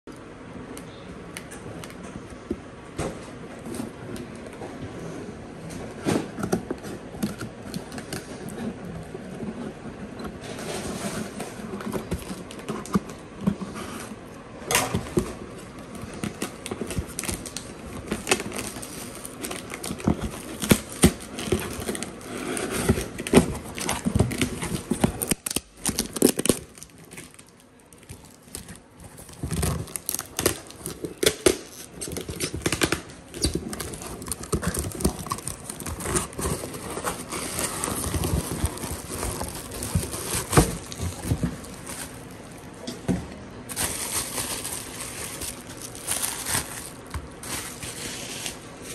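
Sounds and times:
cardboard tearing: 14.9 - 42.5, 43.7 - 48.7.

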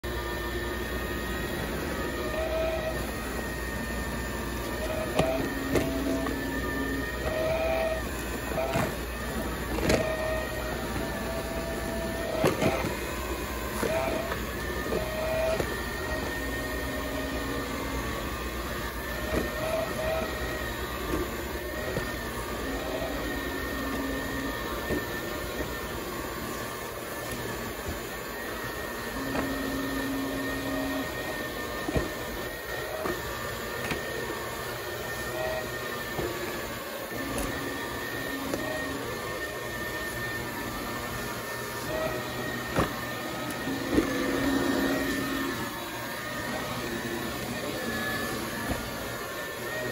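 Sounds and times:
floor scrubber motor whine: 0.0 - 49.9.

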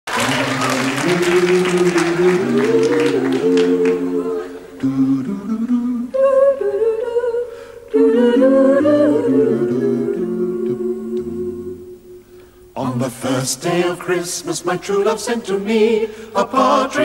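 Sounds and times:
a cappella group humming harmony: 0.1 - 17.0.

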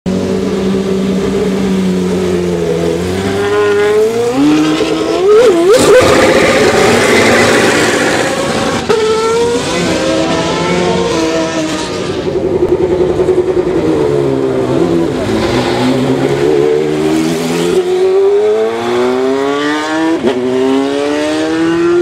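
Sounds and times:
race car engine revving: 0.2 - 22.0.

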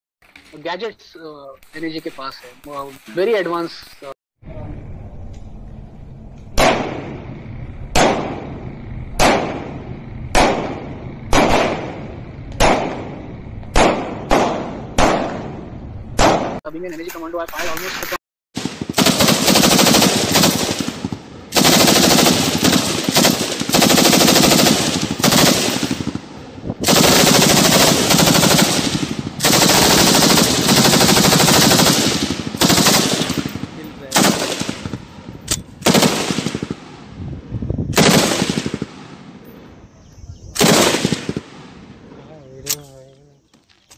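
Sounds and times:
machine guns firing bursts: 10.4 - 12.0, 18.6 - 35.1, 35.8 - 36.9, 38.0 - 39.2, 40.6 - 41.6.

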